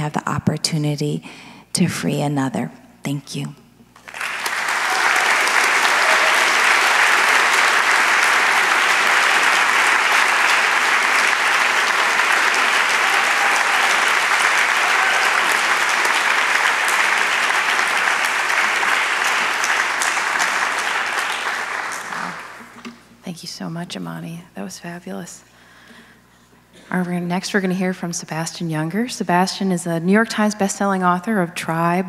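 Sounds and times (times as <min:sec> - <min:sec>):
audience applauding: 0:04.0 - 0:23.0.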